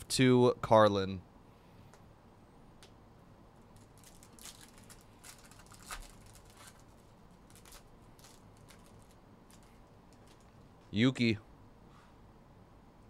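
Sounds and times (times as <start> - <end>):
foil wrapper tearing and crinkling: 3.8 - 10.5.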